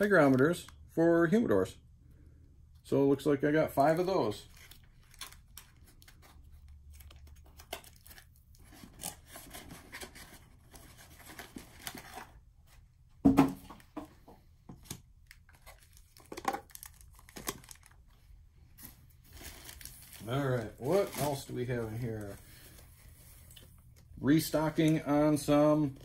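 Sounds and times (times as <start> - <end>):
packaging rustling and tearing: 4.4 - 12.4, 15.3 - 18.2, 19.3 - 23.6.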